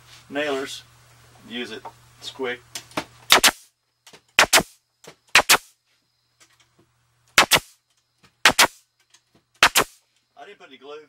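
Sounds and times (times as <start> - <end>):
pneumatic nailer firing into wood: 3.3 - 3.7, 4.3 - 5.8, 7.3 - 7.8, 8.4 - 8.8, 9.6 - 10.0.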